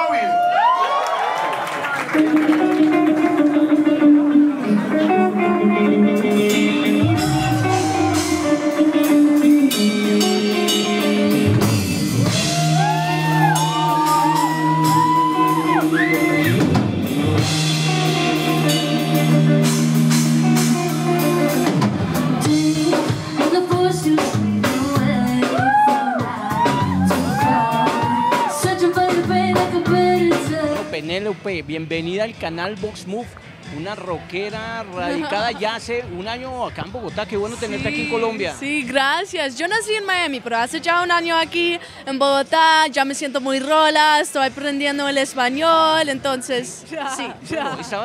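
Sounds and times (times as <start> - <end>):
electric guitars: 1.9 - 31.5
bass guitar: 2.1 - 39.2
drum kit: 2.2 - 39.9
woman singing lead: 4.6 - 9.0, 22.4 - 31.0.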